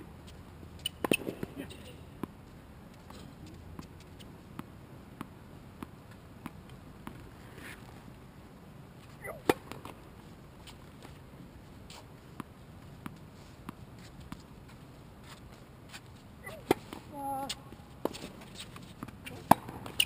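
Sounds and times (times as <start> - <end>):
racket striking ball: 0.8 - 1.6, 19.3 - 20.0
tennis ball bouncing on hard court: 0.8 - 1.6, 18.9 - 20.0.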